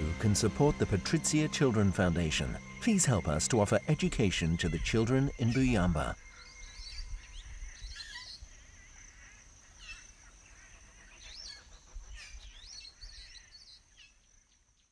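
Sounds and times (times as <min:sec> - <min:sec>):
high insect drone: 0:00.0 - 0:14.5
birds chirping and whistling: 0:00.6 - 0:08.4.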